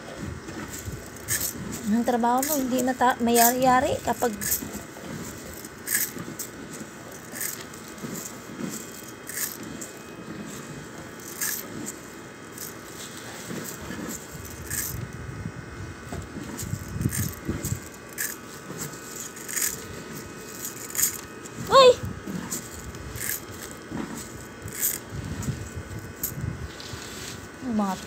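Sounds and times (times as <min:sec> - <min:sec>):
grain rattling against metal: 0:00.5 - 0:15.1, 0:16.3 - 0:28.0
soft scraping: 0:22.2 - 0:28.0.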